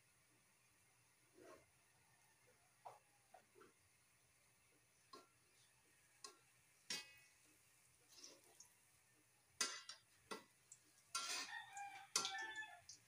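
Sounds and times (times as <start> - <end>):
metal tongs clinking on wok: 9.6 - 10.4, 11.1 - 12.8.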